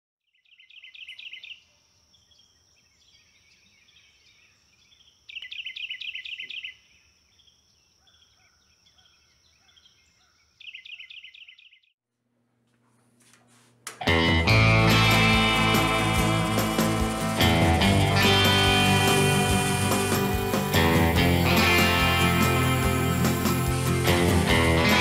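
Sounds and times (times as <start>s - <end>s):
birds chirping: 0.4s - 11.9s, 14.5s - 25.0s
high-pitched whine: 14.4s - 25.0s.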